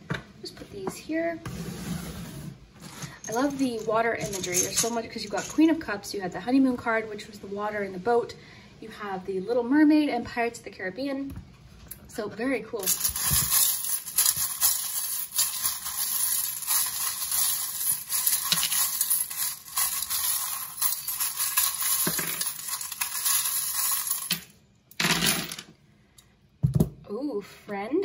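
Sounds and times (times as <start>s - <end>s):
metal charms jangling in bowl: 3.1s - 5.7s, 12.8s - 24.5s.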